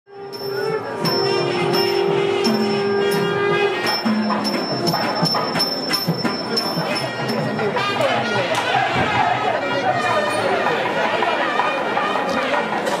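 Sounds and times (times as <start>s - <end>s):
wind instrument playing: 0.1s - 12.9s
bells ringing: 0.2s - 8.4s
sharp drum strokes: 0.3s - 9.6s.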